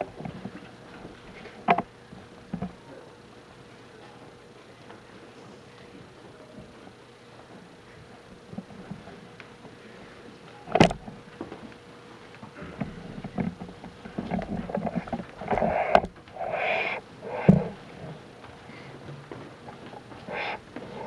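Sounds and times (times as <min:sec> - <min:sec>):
low voices: 0:12.5 - 0:21.0
shuffling: 0:12.5 - 0:21.0
sharp thumps: 0:14.8 - 0:17.8.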